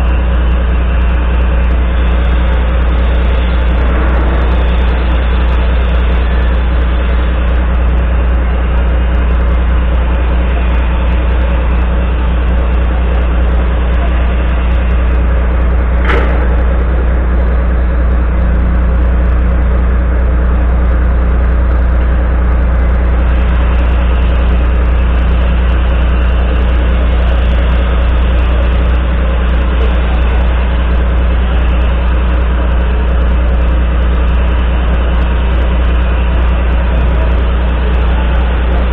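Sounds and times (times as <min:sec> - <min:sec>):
diesel truck engine idling: 0:00.0 - 0:38.9
sharp click: 0:16.0 - 0:18.5.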